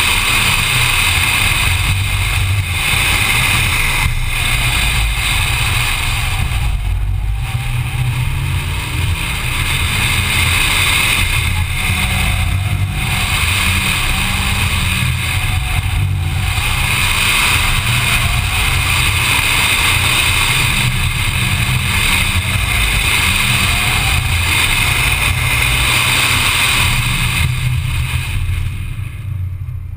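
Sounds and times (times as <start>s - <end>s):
car engine accelerating hard: 0.0s - 29.9s.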